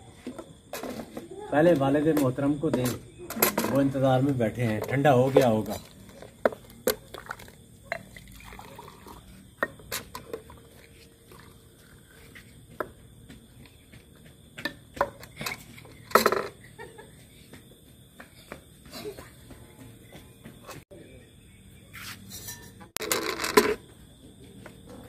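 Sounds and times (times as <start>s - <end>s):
ladle stirring liquid in bucket: 5.4s - 11.6s
liquid pouring: 7.0s - 9.4s.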